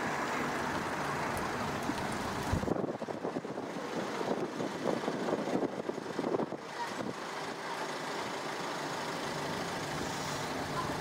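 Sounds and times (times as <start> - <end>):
vehicle engine: 0.0 - 11.0
wind on microphone: 1.9 - 7.1.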